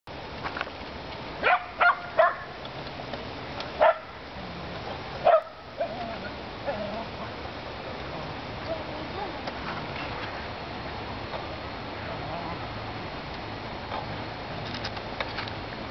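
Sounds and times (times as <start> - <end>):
dog barking: 1.4 - 2.5, 3.8 - 4.1, 5.2 - 6.0.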